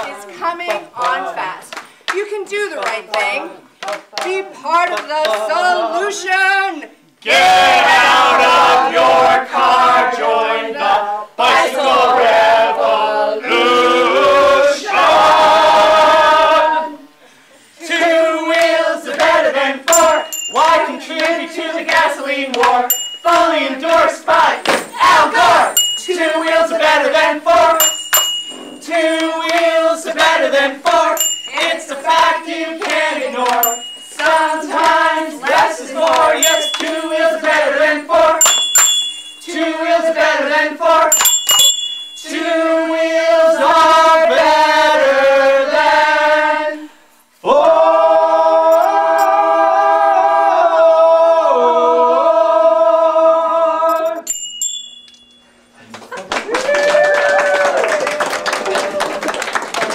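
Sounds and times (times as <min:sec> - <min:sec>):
group singing: 0:00.0 - 0:01.4, 0:07.2 - 0:54.3
bicycle bells dinging: 0:19.9 - 0:21.4, 0:22.8 - 0:23.9, 0:25.4 - 0:29.6, 0:31.0 - 0:32.6, 0:33.6 - 0:35.3, 0:36.2 - 0:40.0, 0:41.1 - 0:42.7, 0:54.0 - 0:55.8.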